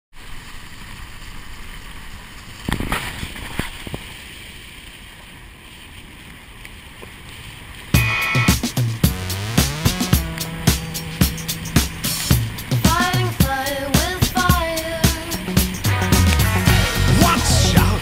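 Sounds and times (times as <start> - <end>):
road and wind noise: 1.0 - 13.5
music with a beat: 8.0 - 18.0.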